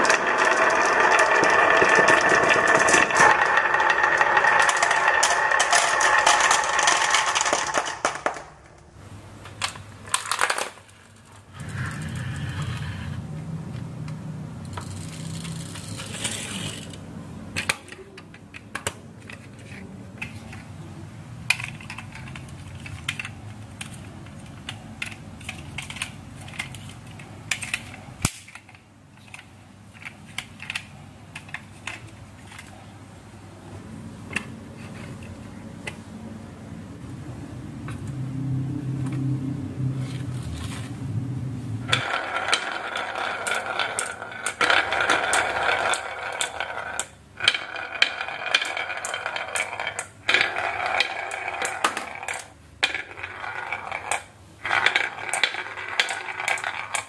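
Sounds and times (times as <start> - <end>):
toy truck wheels rumbling on wood: 0.0 - 8.5, 10.1 - 13.4, 14.7 - 20.7, 21.5 - 32.8, 41.8 - 57.0
marbles clattering down wooden slope: 0.0 - 8.6, 10.1 - 12.8, 14.7 - 17.0, 41.8 - 57.0.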